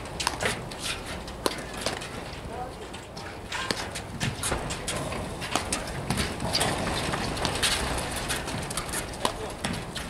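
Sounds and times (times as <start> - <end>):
paddles hitting rubber ball: 3.6 - 10.0
ball bouncing on court deck: 9.0 - 10.0.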